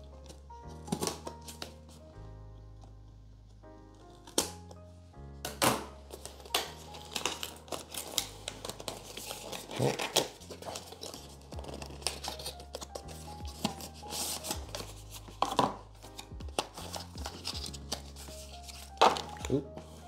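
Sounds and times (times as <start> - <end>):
plastic accessories being handled: 5.4 - 20.0
background music with bass: 9.6 - 20.0.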